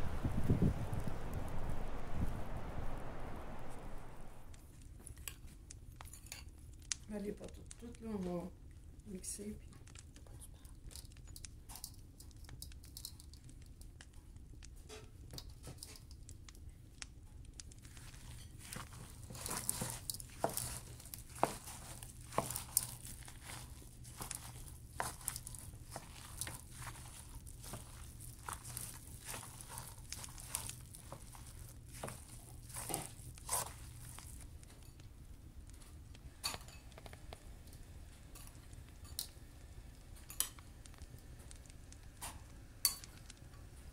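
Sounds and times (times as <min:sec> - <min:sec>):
wet squishing of meat by hand: 0:17.8 - 0:34.6.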